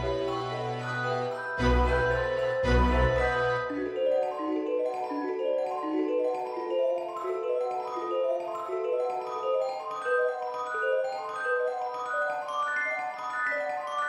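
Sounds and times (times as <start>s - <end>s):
mallet percussion melody: 0.0s - 14.0s.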